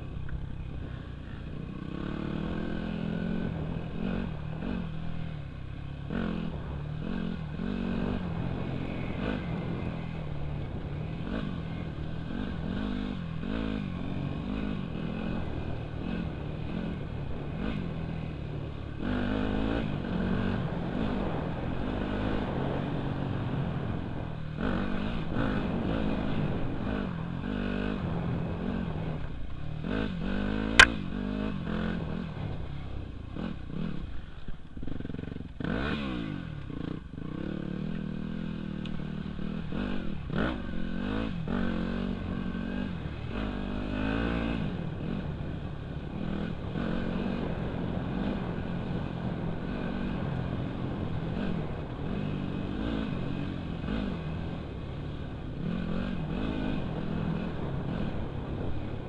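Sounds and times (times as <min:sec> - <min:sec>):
dirt bike engine revving: 0:00.8 - 0:59.0
sharp click: 0:30.8 - 0:31.0.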